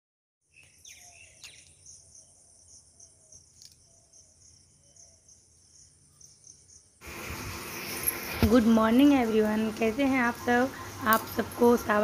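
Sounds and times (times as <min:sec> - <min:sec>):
bird calls: 0:00.4 - 0:07.0
insects chirping in high trill: 0:00.8 - 0:07.0.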